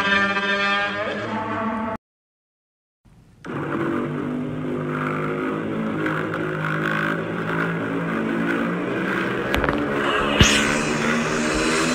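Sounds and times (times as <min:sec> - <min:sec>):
droning hum with shifting tones: 0:03.4 - 0:11.9
sharp crack: 0:09.3 - 0:11.9.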